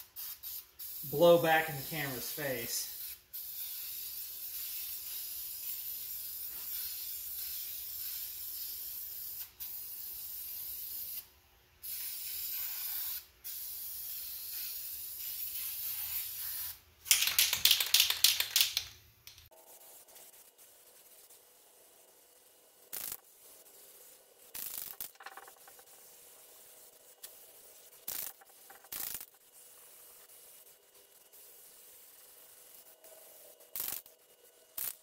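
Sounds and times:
aerosol spray can hissing: 0.0 - 18.8, 22.9 - 35.0
spray can ball rattling: 14.1 - 19.5, 24.5 - 29.4, 33.7 - 34.1.

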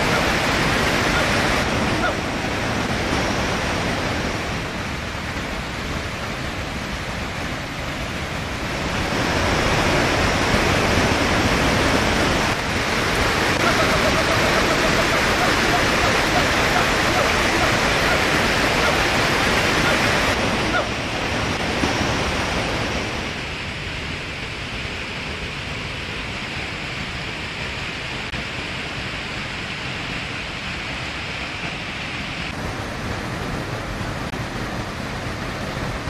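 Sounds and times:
steady rushing noise: 0.0 - 36.0.

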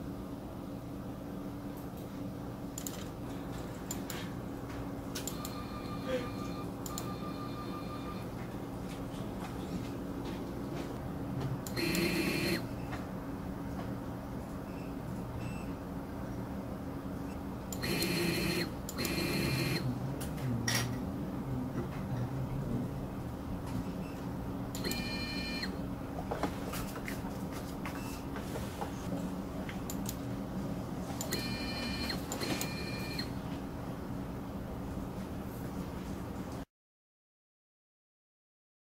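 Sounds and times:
steady low hum: 0.0 - 36.6
stepper motor whine: 17.8 - 19.9.

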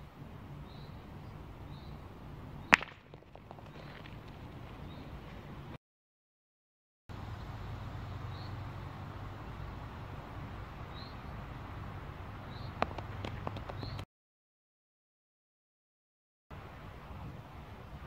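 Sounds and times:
light knocks of boules: 2.7 - 4.5, 12.8 - 14.0.

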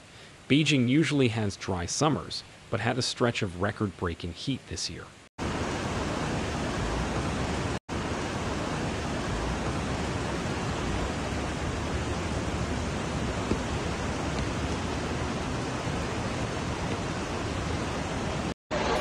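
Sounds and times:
torrential rain and floodwater rushing: 5.4 - 18.6.

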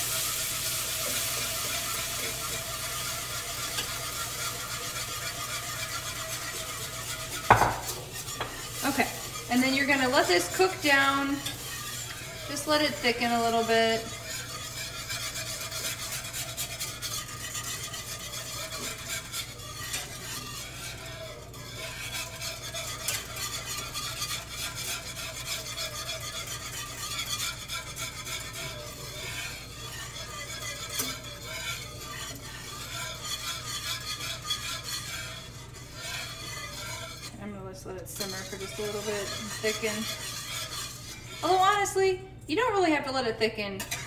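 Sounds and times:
whisk scraping a pan: 0.0 - 44.0.

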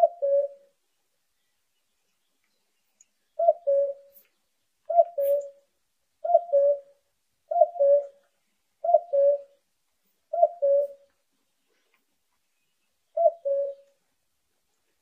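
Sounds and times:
cuckoo calling: 0.0 - 0.8, 3.4 - 9.6, 10.3 - 11.1, 13.1 - 14.0.

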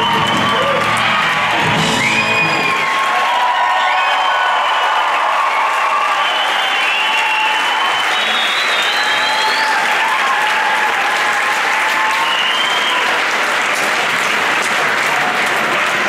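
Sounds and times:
audience applauding: 0.0 - 16.0
high whistles: 1.8 - 3.0, 6.0 - 10.0, 12.2 - 13.2.

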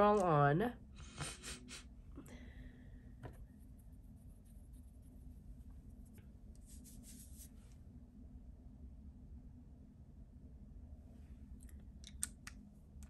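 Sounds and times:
steady low hum: 0.0 - 13.0
soft rustles: 5.6 - 7.8.

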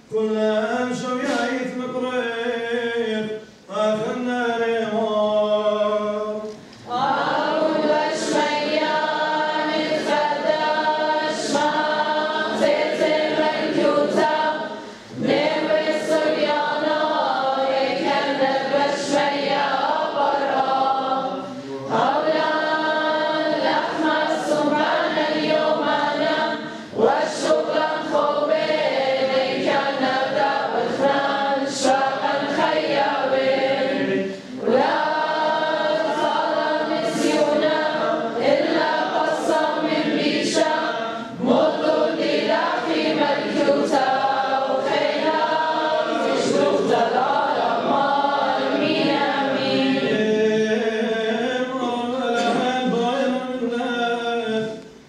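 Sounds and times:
group of voices chanting: 6.9 - 50.4
single voice chanting: 21.2 - 22.3, 49.8 - 55.0.

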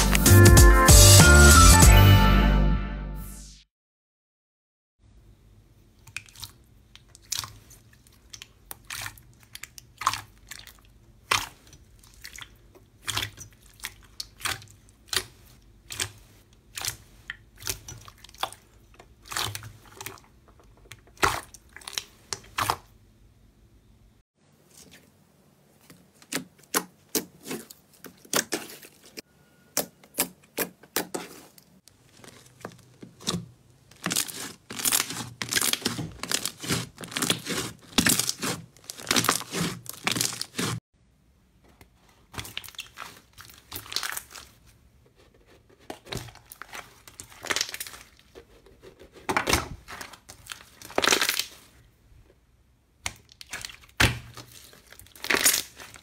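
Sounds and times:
hands squishing sticky slime: 6.0 - 22.9, 25.8 - 29.2, 29.8 - 40.8, 41.8 - 44.7, 45.7 - 51.8, 53.0 - 56.0.

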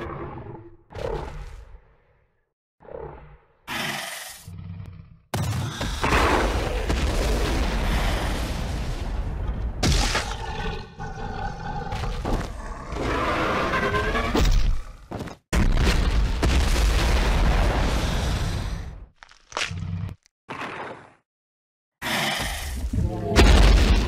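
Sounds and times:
animal roars: 0.0 - 1.8, 10.2 - 14.9.

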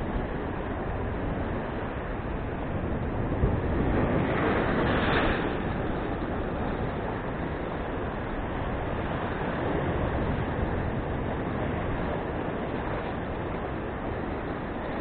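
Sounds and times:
surf breaking on rocks: 2.8 - 15.0.

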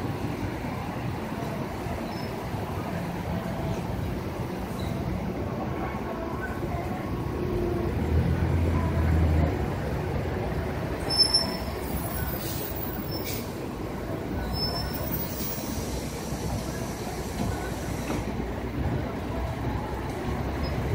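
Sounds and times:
passing traffic: 0.0 - 20.9
faint high squeals: 11.0 - 13.5, 14.4 - 16.0.

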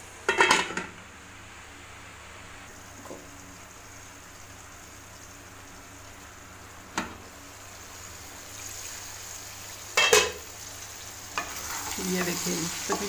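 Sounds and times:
metal lid clattering: 0.3 - 0.9, 10.0 - 10.4.

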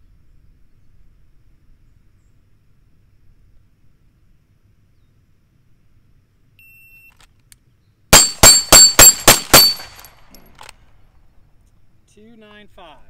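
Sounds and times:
pistol shots: 8.2 - 10.4
bullets ringing on steel targets: 8.2 - 10.5.

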